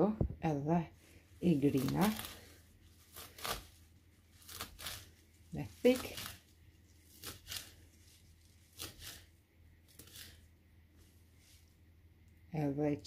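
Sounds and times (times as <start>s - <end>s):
knife chopping mint leaves: 1.5s - 9.3s, 9.9s - 10.5s.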